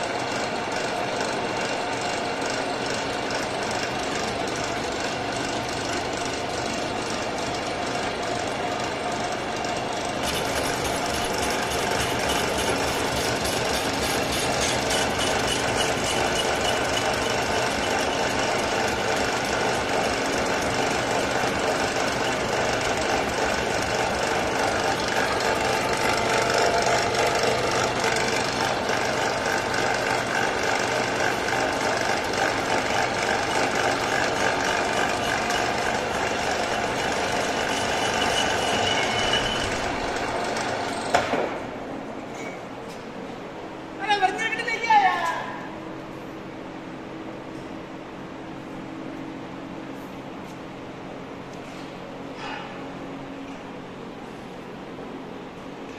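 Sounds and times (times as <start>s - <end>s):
metal lathe running: 0.1s - 41.1s.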